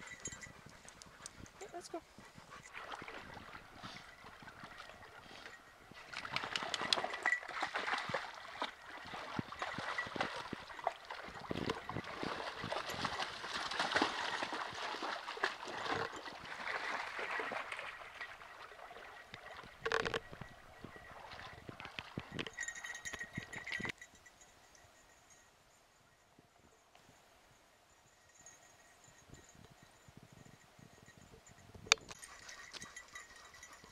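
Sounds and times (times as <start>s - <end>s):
dogs splashing through water: 1.6s - 19.8s
water trickling over rocks: 2.6s - 24.2s.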